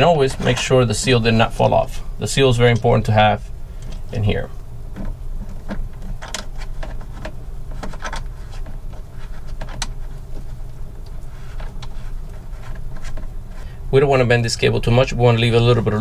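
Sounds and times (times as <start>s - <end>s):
cables clicking and rattling: 0.0s - 2.0s, 4.9s - 13.7s
steady low hum: 0.0s - 16.0s.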